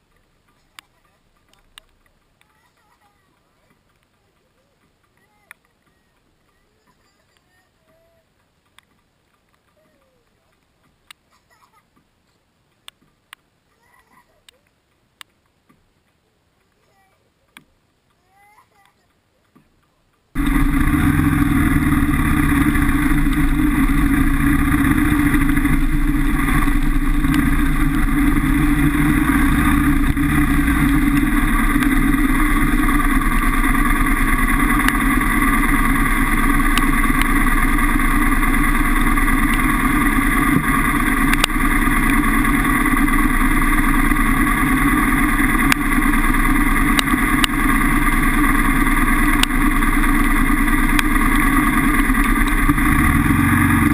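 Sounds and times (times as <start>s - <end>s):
motorcycle engine running: 20.4s - 53.9s.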